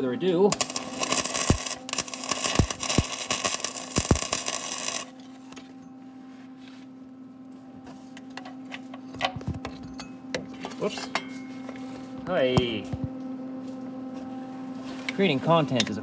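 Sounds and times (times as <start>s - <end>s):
arc welder crackling: 0.0s - 5.8s
steady low hum: 0.0s - 16.0s.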